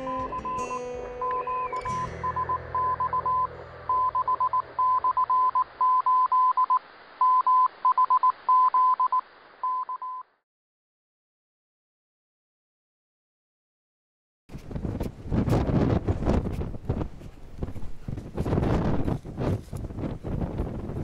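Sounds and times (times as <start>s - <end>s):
music: 0.0s - 4.1s
morse code beeps: 0.0s - 10.3s
radio hiss: 3.2s - 10.0s.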